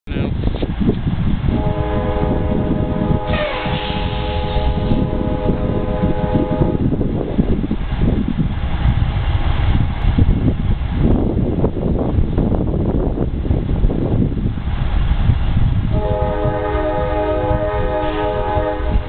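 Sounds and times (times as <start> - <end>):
heavy low rumble: 0.0 - 19.0
locomotive air horn chord: 1.5 - 6.8, 15.9 - 19.0.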